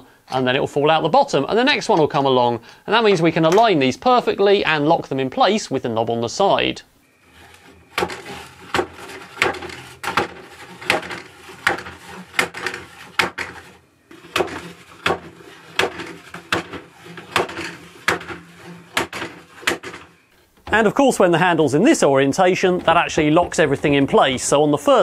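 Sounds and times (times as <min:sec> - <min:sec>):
plastic clacking knocks: 0:14.3 - 0:20.8.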